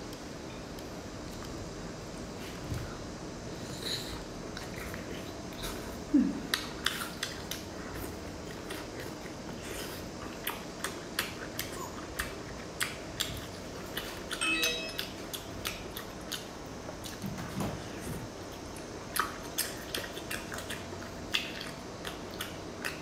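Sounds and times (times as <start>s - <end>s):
chewing clicks and smacks: 6.5s - 7.7s, 10.4s - 14.4s, 15.0s - 17.3s, 18.7s - 23.0s.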